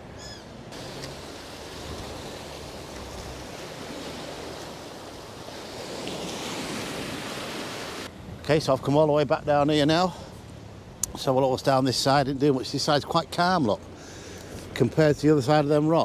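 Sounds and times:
sea waves breaking on beach: 0:00.7 - 0:08.1.

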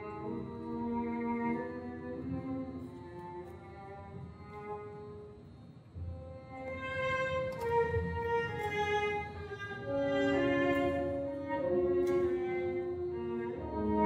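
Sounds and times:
orchestra playing bowed strings: 0:00.0 - 0:05.2, 0:06.1 - 0:14.0.

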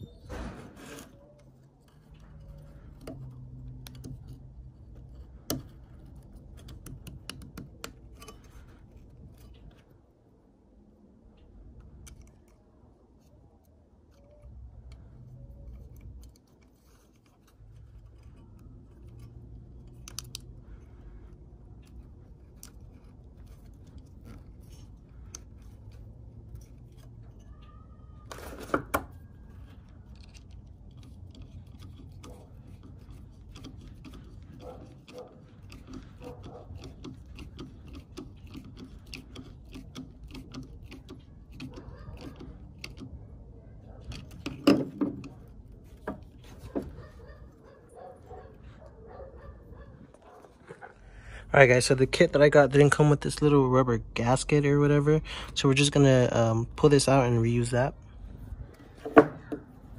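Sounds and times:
plastic and metal clicks and rattles: 0:00.9 - 0:09.9, 0:11.3 - 0:48.8.

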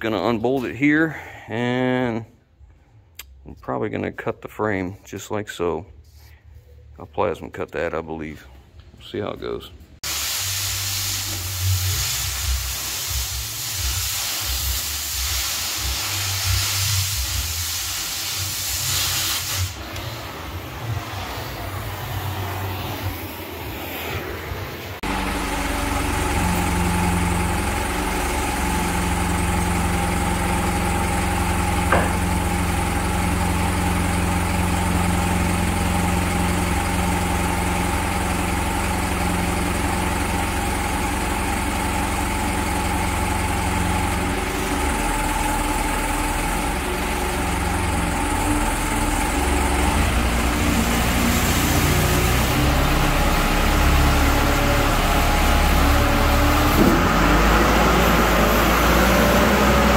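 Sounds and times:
engine idling: 0:25.0 - 0:59.9.

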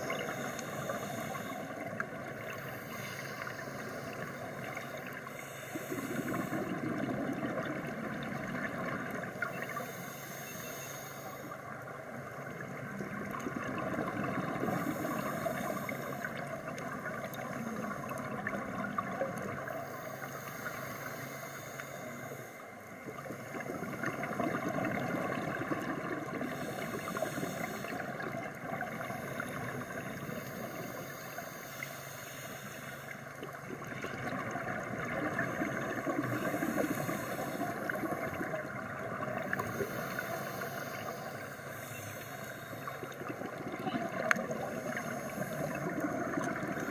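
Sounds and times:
scuba regulator hiss: 0:00.0 - 0:01.7, 0:02.4 - 0:06.7, 0:09.7 - 0:11.6, 0:14.7 - 0:16.4, 0:19.8 - 0:22.6, 0:26.5 - 0:28.2, 0:29.1 - 0:33.2, 0:36.3 - 0:37.9, 0:39.6 - 0:43.1, 0:44.6 - 0:45.9
bubbling exhaust underwater: 0:00.0 - 0:32.5, 0:33.1 - 0:46.9.

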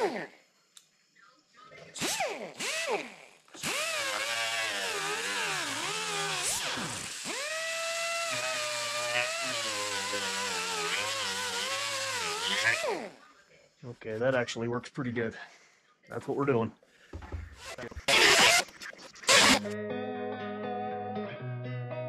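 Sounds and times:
pneumatic die grinder whining: 0:00.0 - 0:00.2, 0:02.0 - 0:13.2, 0:17.4 - 0:19.8.

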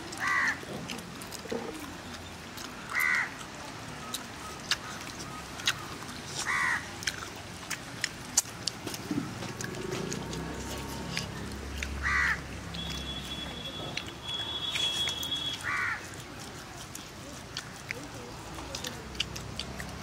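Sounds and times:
crow cawing: 0:00.2 - 0:00.6, 0:02.9 - 0:03.3, 0:06.5 - 0:06.8, 0:12.0 - 0:12.4, 0:15.6 - 0:16.0.

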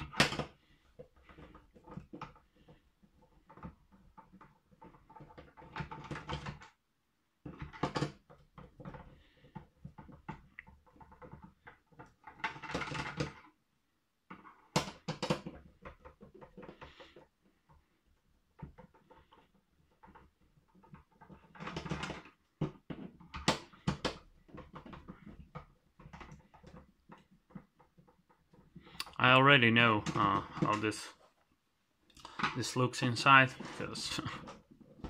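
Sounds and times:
plastic housing clicks and knocks: 0:00.0 - 0:02.5, 0:14.3 - 0:17.3, 0:18.5 - 0:29.1.

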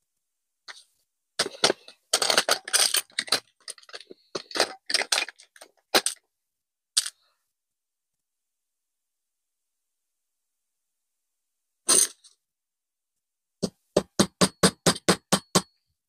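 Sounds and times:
clicks of small hard objects: 0:01.4 - 0:06.2.

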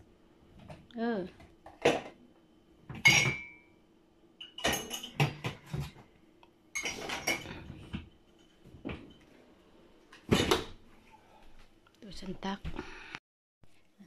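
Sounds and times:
glasses clattering in rack: 0:02.9 - 0:03.6, 0:04.4 - 0:05.9, 0:06.7 - 0:07.6
glasses clinking: 0:03.0 - 0:03.7, 0:04.4 - 0:05.6, 0:06.7 - 0:07.6.

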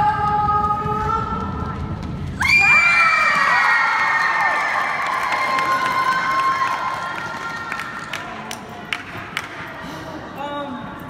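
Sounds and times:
children cheering and screaming: 0:02.4 - 0:07.9.

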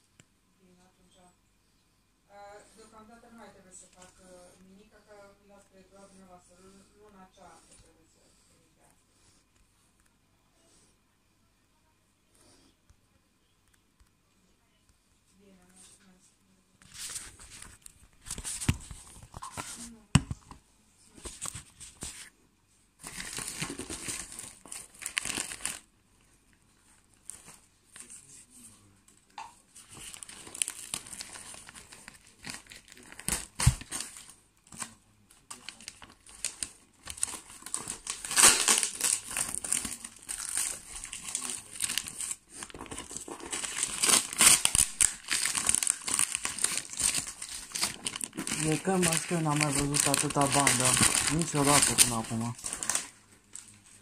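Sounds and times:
paper crumpling: 0:16.9 - 0:19.9, 0:23.0 - 0:25.9, 0:29.7 - 0:54.0
packing tape tearing: 0:35.5 - 0:53.2.

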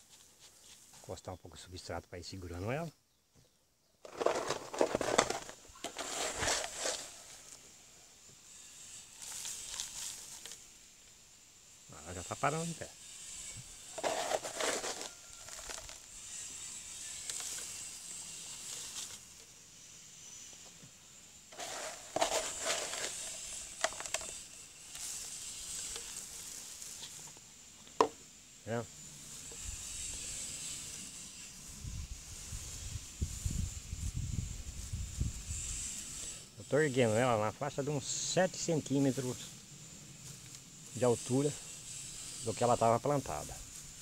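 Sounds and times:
substrate crunching and rustling: 0:04.0 - 0:07.6, 0:08.8 - 0:10.7, 0:13.8 - 0:19.4, 0:21.5 - 0:27.4.

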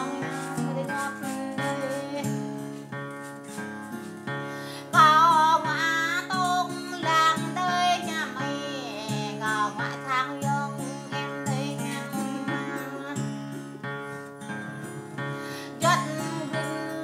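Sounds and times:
woman singing with vibrato: 0:00.0 - 0:02.6, 0:04.6 - 0:13.6, 0:15.5 - 0:17.0
strummed acoustic guitar: 0:00.0 - 0:17.0.

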